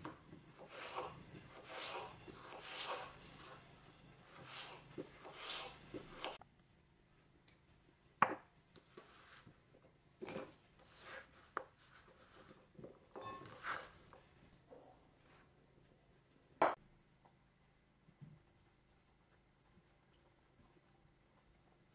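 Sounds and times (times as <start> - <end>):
knocks and scrapes on board: 0.0 - 3.7, 4.3 - 6.4
knife slicing potato on board: 0.0 - 6.4.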